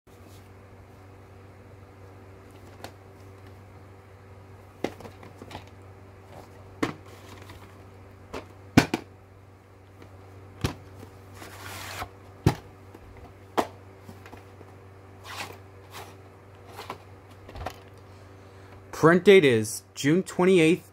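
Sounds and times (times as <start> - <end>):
steady low hum: 0.1 - 20.9
sliding scrape: 11.3 - 12.1.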